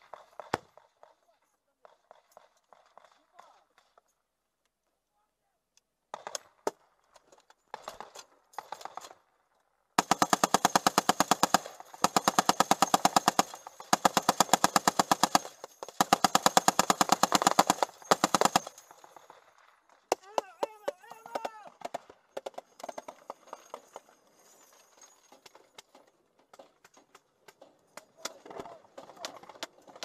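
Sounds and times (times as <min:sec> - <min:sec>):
machine gun bursts: 0:10.0 - 0:19.6.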